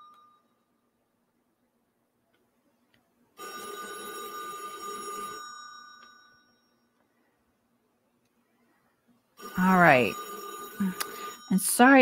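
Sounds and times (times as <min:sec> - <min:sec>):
telephone ringing: 0:03.4 - 0:07.0, 0:09.4 - 0:12.0.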